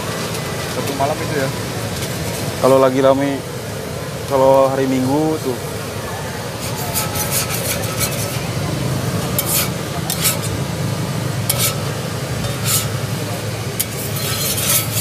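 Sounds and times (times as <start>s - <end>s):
metal spatula scraping griddle: 6.6s - 8.6s, 9.2s - 10.6s, 11.4s - 15.0s.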